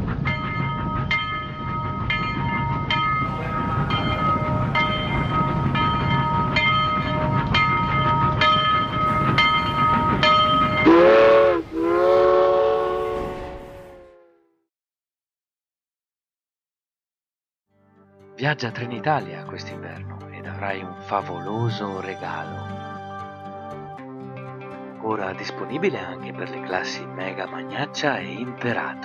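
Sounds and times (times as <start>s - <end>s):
low train rumble: 0.0s - 14.3s
bell striking: 0.2s - 11.1s
train horn blasts: 3.2s - 8.4s, 9.1s - 14.6s.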